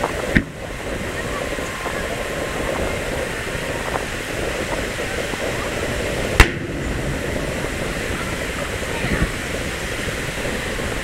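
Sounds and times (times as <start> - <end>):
firework shell bursting with boom: 0.0 - 0.7, 6.3 - 8.5
steady background noise: 0.0 - 11.0.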